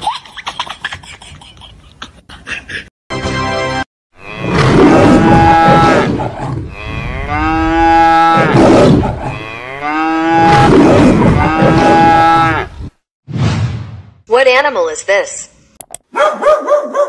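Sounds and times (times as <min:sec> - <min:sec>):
cow mooing: 0:04.2 - 0:12.7.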